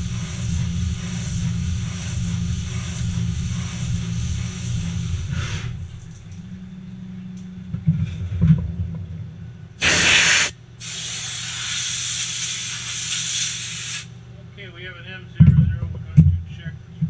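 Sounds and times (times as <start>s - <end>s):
compressed air blow gun hissing: 0.0s - 6.2s, 9.8s - 14.1s
lathe humming: 0.0s - 7.2s.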